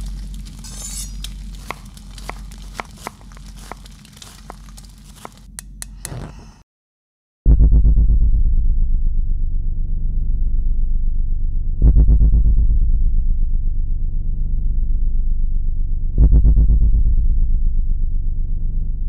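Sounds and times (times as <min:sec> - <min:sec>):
crackles and sharp clicks: 0:00.0 - 0:06.2
low hum: 0:00.0 - 0:06.6, 0:07.5 - 0:19.0.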